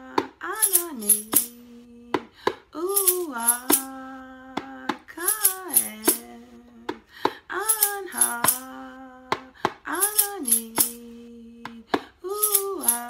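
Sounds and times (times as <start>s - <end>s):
woman chanting: 0.0s - 13.0s
hand rattle shaking: 0.6s - 1.6s, 3.0s - 3.9s, 5.2s - 6.3s, 7.7s - 8.7s, 10.0s - 11.0s, 12.4s - 13.0s.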